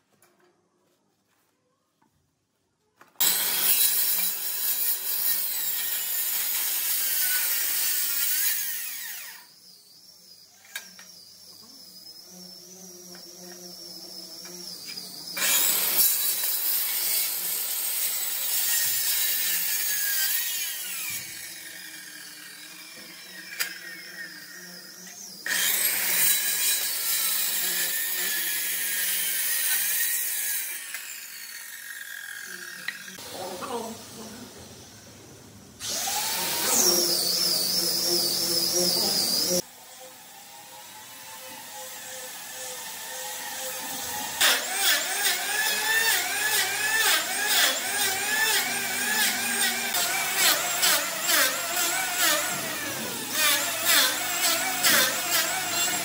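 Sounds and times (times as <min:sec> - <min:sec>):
power tool cutting wood: 0:03.2 - 0:33.9, 0:35.8 - 0:56.0.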